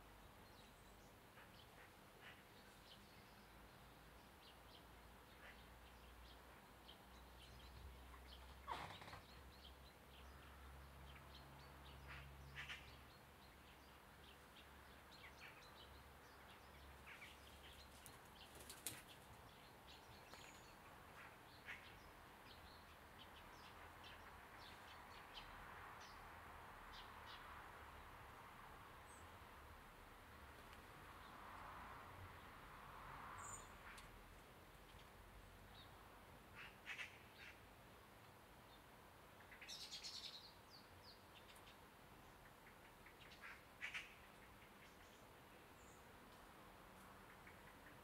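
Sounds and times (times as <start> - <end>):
bird flutters: 17.8 - 19.4.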